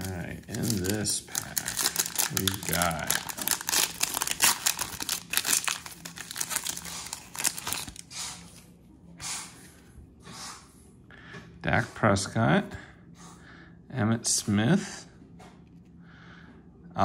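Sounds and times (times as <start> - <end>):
foil wrapper tearing and crinkling: 0.0 - 8.1.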